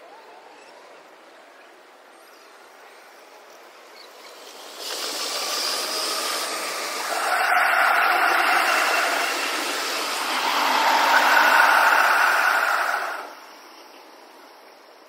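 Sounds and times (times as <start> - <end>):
electric trains rushing past: 4.0 - 14.8.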